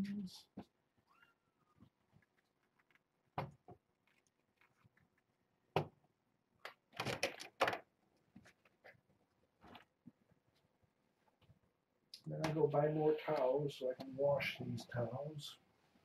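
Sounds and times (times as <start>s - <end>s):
objects being handled: 1.8s - 6.0s, 6.6s - 11.6s.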